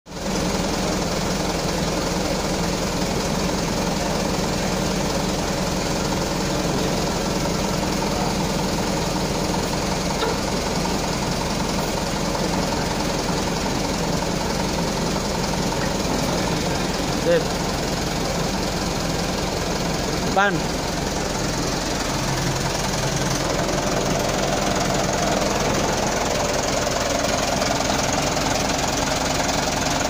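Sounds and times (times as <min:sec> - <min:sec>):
hydraulic pump running: 0:00.1 - 0:30.0
valve levers worked: 0:09.6 - 0:11.2.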